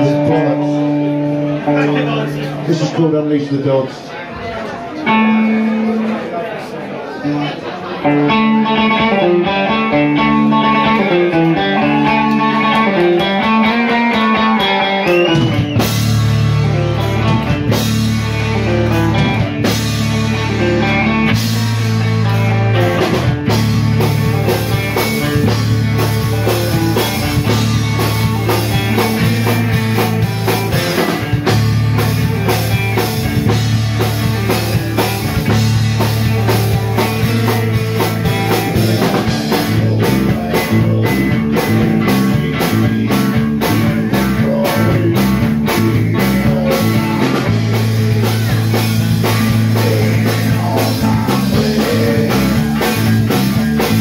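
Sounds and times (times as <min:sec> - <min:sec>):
bass guitar: 0:00.0 - 0:03.8, 0:04.4 - 0:06.4, 0:07.2 - 0:54.0
electric guitars: 0:00.0 - 0:06.5, 0:07.2 - 0:54.0
drum kit: 0:08.1 - 0:54.0
person singing: 0:38.0 - 0:54.0.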